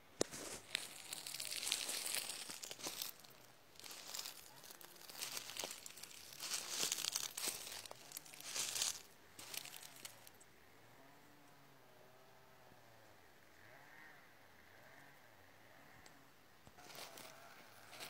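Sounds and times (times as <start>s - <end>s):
rustling and crinkling at microphone: 0.1s - 10.3s.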